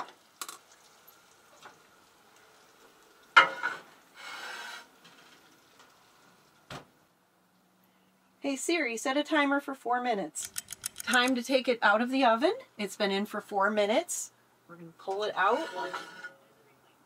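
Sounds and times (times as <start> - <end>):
faint sizzling from pot: 0.0 - 7.1, 15.0 - 16.5
pot scraping onto oven rack: 3.4 - 5.3, 15.2 - 16.4.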